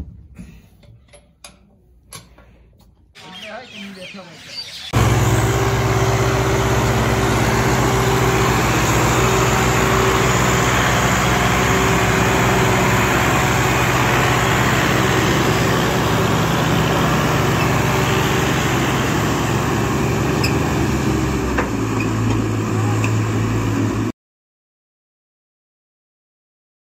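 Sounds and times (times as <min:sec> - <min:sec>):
diesel tractor engines running: 0:03.2 - 0:24.1.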